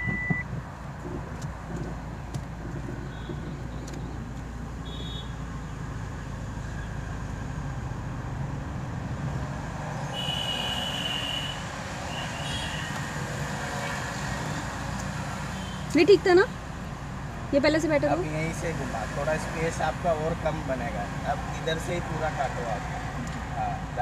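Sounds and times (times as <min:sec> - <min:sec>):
car engine low hum: 0:00.0 - 0:10.2.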